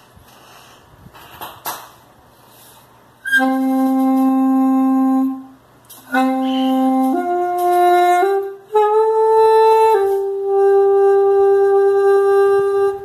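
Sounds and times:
reed pipe playing notes: 0:03.2 - 0:13.0.

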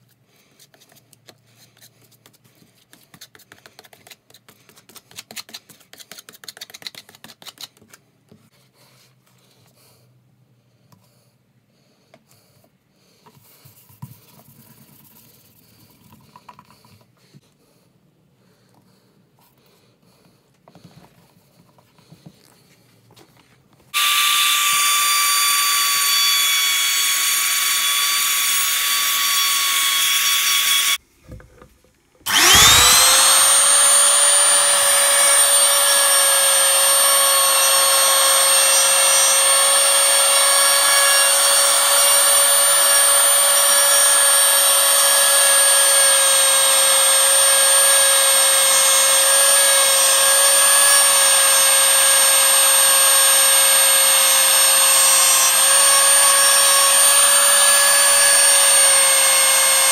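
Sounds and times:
router whining through wood: 0:23.9 - 0:59.9.

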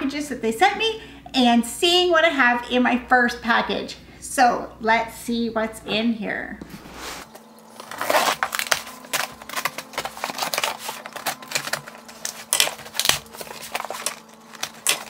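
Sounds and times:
cardboard crackling and scraping: 0:06.6 - 0:15.0
packing tape tearing: 0:07.2 - 0:15.0.

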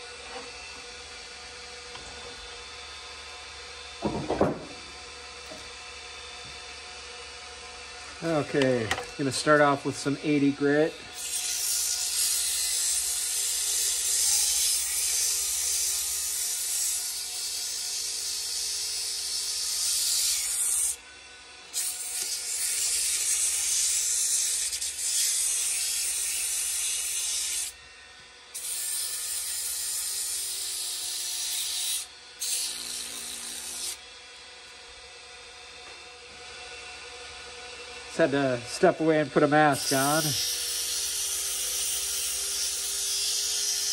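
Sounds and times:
wood lathe running: 0:07.2 - 0:27.8, 0:28.5 - 0:34.0, 0:35.8 - 0:43.9
sandpaper hissing on spinning wood: 0:09.2 - 0:21.0, 0:21.7 - 0:27.8, 0:38.2 - 0:43.9.

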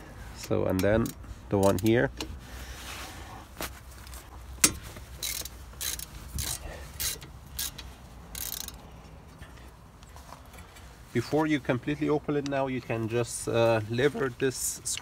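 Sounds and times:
socket ratchet clicking: 0:04.6 - 0:08.8.

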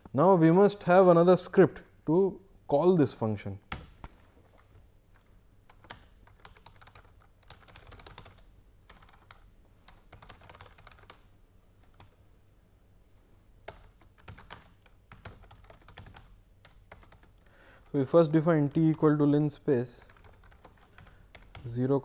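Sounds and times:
typing on computer keyboard: 0:05.2 - 0:12.2, 0:13.7 - 0:17.5, 0:20.0 - 0:21.7.

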